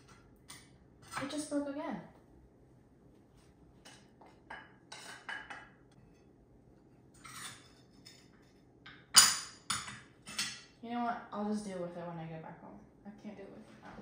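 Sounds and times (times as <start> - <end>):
utensils clinking on a plate: 3.8 - 6.3, 7.1 - 10.8
dishware clattering: 3.9 - 5.8, 7.2 - 10.8.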